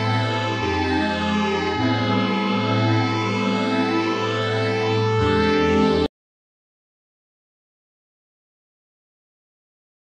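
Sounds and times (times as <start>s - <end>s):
ambient instrumental chords: 0.0s - 6.1s.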